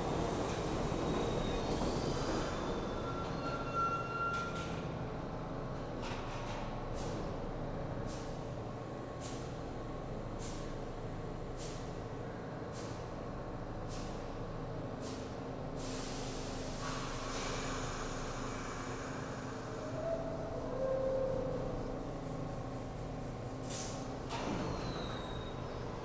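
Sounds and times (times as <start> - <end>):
air system hissing: 15.8 - 24.2.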